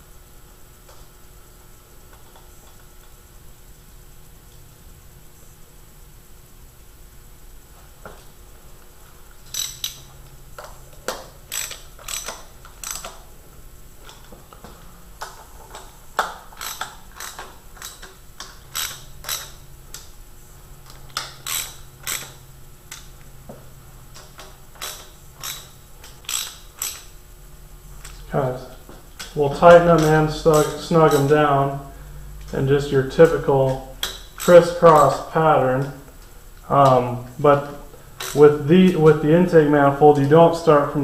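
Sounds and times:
socket ratchet clicking: 9.5s - 13.3s, 15.2s - 20.1s, 20.9s - 23.2s, 24.1s - 27.2s, 29.1s - 31.5s, 33.2s - 35.3s, 38.2s - 39.2s.

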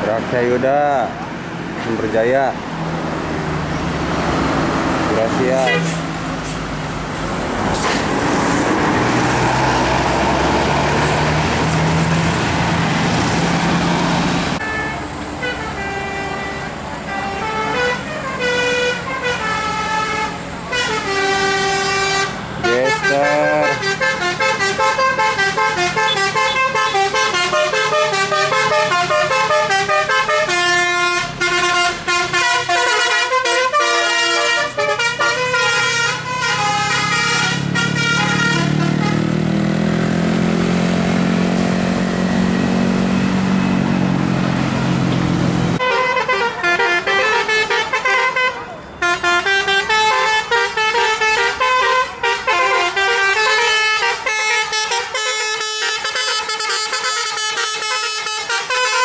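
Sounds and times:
diesel engine passing: 0.0s - 59.0s
musical bus air horn: 5.5s - 6.6s, 14.6s - 39.4s, 45.8s - 59.0s.

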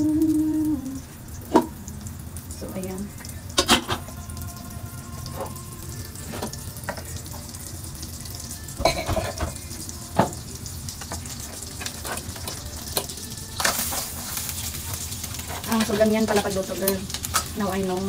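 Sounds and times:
butter sizzling in wok: 0.0s - 18.0s
utensils clattering against pots: 3.6s - 4.2s, 5.2s - 7.5s, 8.7s - 18.0s.

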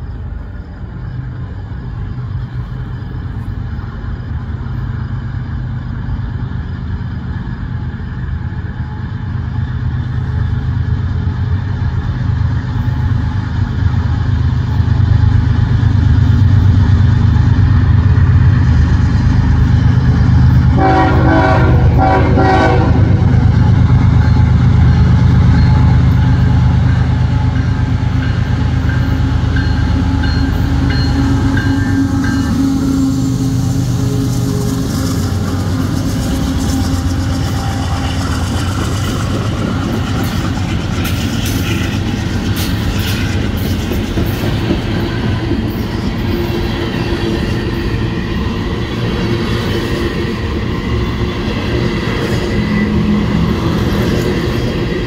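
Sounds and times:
diesel locomotive engine rumble: 0.0s - 55.0s
train horn: 20.6s - 23.4s, 29.0s - 38.5s.

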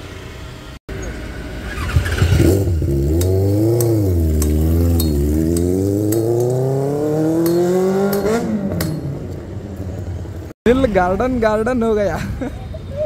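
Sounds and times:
motorcycle engine revving: 0.9s - 10.6s.

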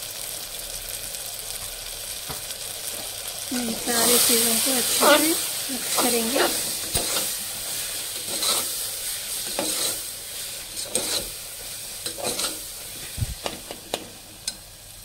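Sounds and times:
spices sizzling in a pot: 0.0s - 15.0s
spoon scraping and knocking pot: 5.9s - 7.3s, 8.2s - 8.7s, 9.4s - 10.0s, 10.8s - 11.3s, 12.0s - 12.6s.

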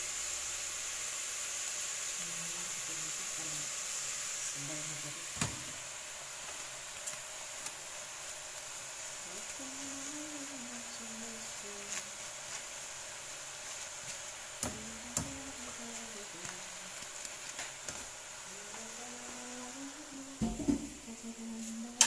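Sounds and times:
faint steady hiss: 0.0s - 22.0s
person humming: 9.3s - 12.0s, 14.6s - 17.0s, 18.5s - 22.0s.

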